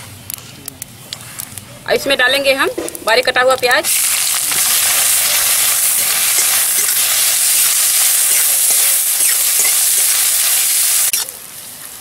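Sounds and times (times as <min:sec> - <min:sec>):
onion sizzling in hot oil: 0:02.8 - 0:12.0.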